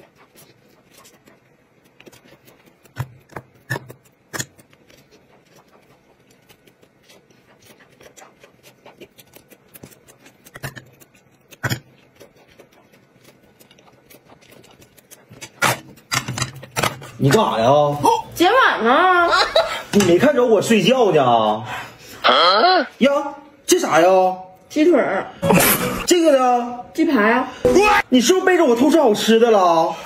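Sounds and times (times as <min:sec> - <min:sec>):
mouth smacks and clicks: 0:00.0 - 0:15.8
soft chewing: 0:00.0 - 0:18.4.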